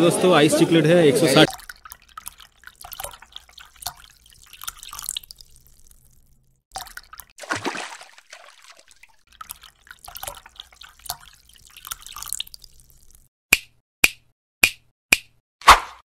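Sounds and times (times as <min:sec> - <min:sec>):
water splashing and dripping: 0:01.4 - 0:13.3.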